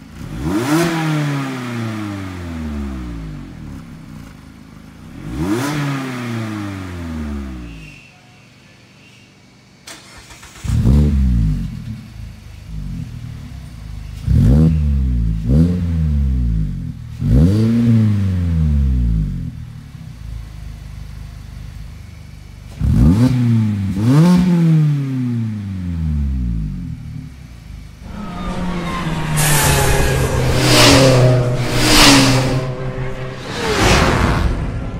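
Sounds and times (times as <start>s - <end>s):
car engine free-revving: 26.3s - 34.9s.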